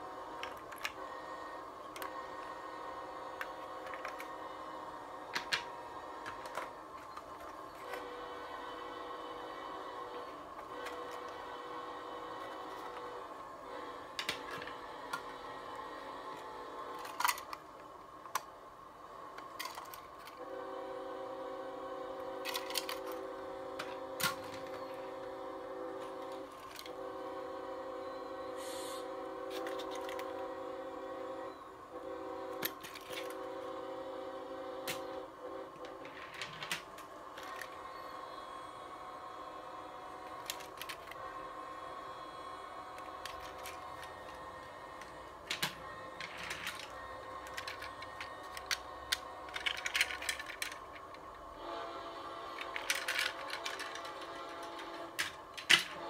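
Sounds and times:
steady multi-pitched hum: 0:00.0 - 0:56.0
plastic model cars clicking: 0:00.4 - 0:01.0, 0:01.9 - 0:02.4, 0:03.3 - 0:04.4, 0:05.2 - 0:08.1, 0:14.1 - 0:18.5, 0:19.3 - 0:20.4, 0:22.4 - 0:25.1, 0:26.0 - 0:27.0, 0:29.5 - 0:30.4, 0:32.6 - 0:33.4, 0:35.8 - 0:37.8, 0:40.2 - 0:41.3, 0:42.9 - 0:51.4, 0:52.4 - 0:56.0.

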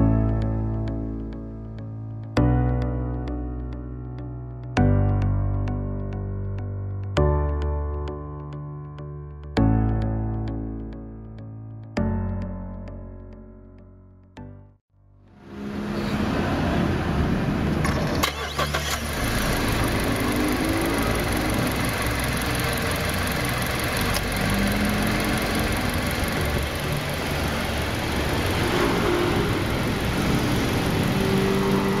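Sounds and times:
car engine starting and idling: 0:15.4 - 0:32.0.

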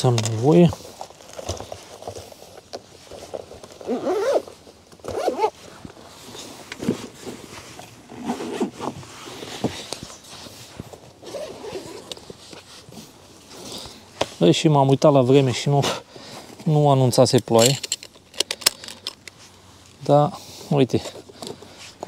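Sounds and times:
bags rustling: 0:00.0 - 0:14.6, 0:15.5 - 0:19.8
zippers being pulled: 0:03.8 - 0:05.6, 0:08.1 - 0:10.2, 0:11.2 - 0:12.9.

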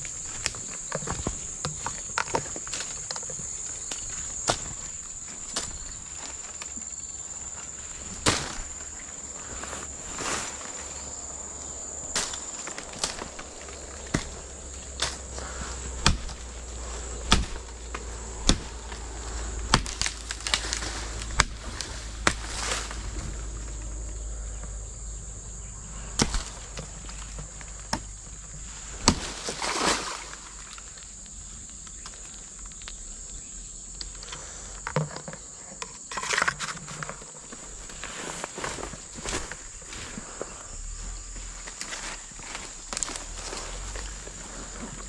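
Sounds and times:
sharp snaps and knocks: 0:00.3 - 0:06.8, 0:12.1 - 0:23.8, 0:26.1 - 0:28.3, 0:29.0 - 0:30.0
high-pitched insect drone: 0:08.8 - 0:28.9.

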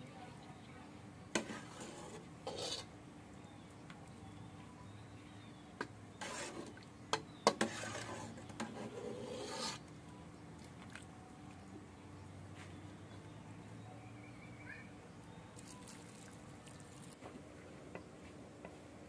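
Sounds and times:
faint rubbing and scraping: 0:01.4 - 0:02.9, 0:06.1 - 0:06.8, 0:07.5 - 0:09.9
low steady hum: 0:09.8 - 0:19.0.

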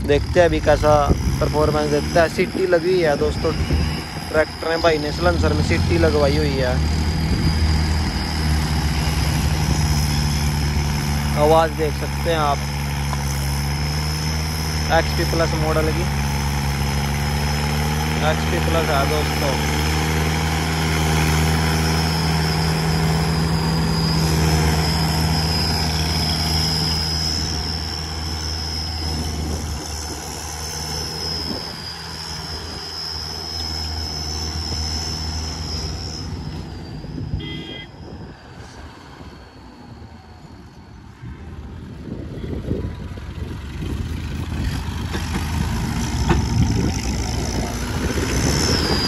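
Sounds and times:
tractor diesel engine running: 0:00.0 - 0:49.0
steady high whistle: 0:02.6 - 0:10.8, 0:21.7 - 0:41.2, 0:46.9 - 0:49.0.

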